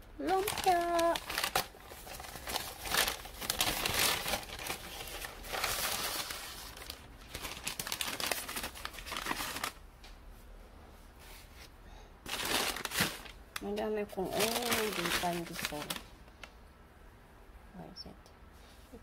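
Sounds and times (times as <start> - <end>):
paper bag crinkling: 0.2 - 9.8, 12.2 - 13.6, 14.2 - 16.5.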